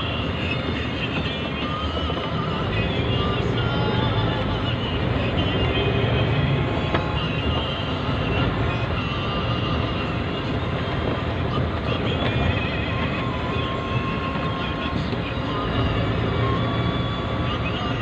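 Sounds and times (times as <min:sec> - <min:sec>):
vehicle engine and road rumble: 0:00.0 - 0:18.0.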